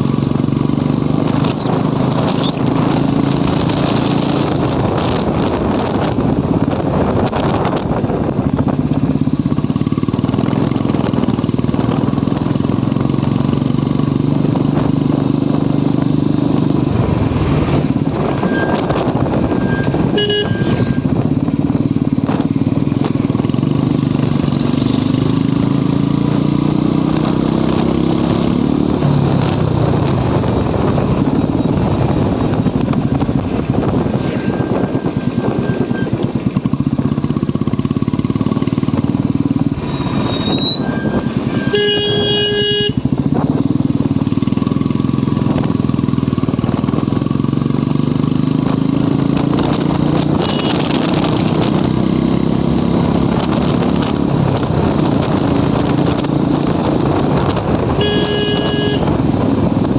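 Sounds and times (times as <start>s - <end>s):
motorcycle engine running: 0.0s - 59.9s
vehicle horn: 18.2s - 21.3s, 40.4s - 43.3s, 50.4s - 51.1s, 57.9s - 59.4s.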